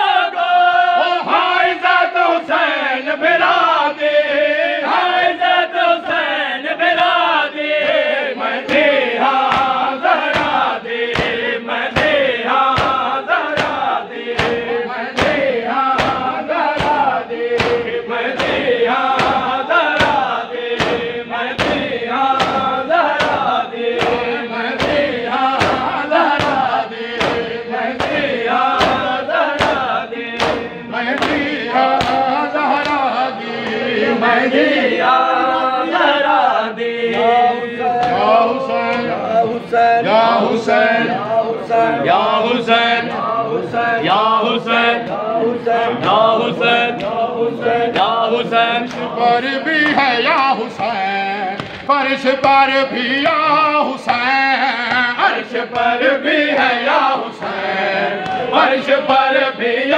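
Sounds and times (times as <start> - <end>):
men chanting a lament: 0.0 - 59.9
hands slapping chests: 8.7 - 33.9, 51.6 - 51.9, 58.2 - 58.5.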